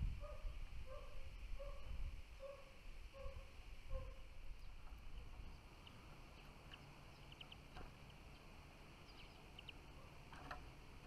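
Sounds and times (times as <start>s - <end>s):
finches chirping: 3.2s - 10.3s.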